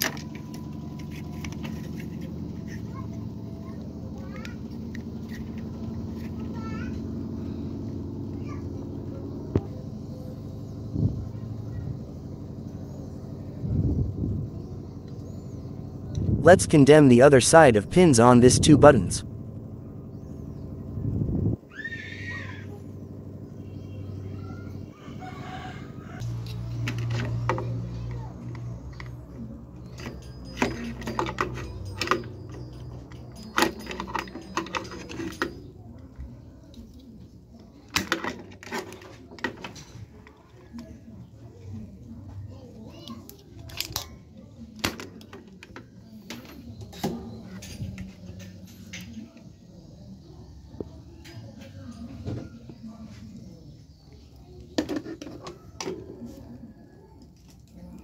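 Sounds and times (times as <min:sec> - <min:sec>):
steady low hum: 0:00.0 - 0:38.7.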